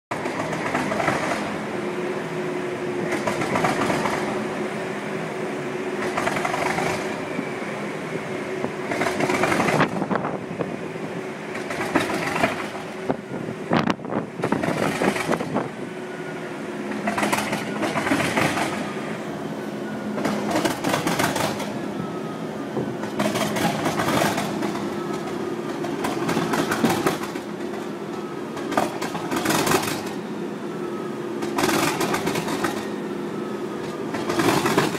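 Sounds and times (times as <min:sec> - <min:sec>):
diesel locomotive engine running: 0:00.1 - 0:34.9.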